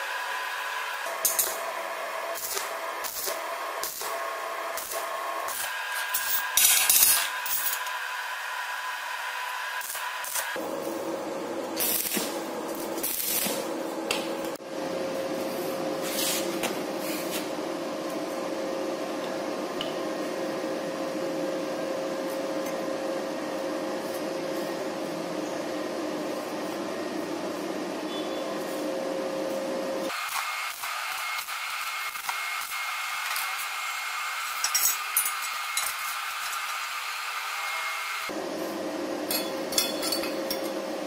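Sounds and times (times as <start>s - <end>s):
welding arc crackling: 0.8s - 7.9s, 9.4s - 14.6s, 30.1s - 38.3s.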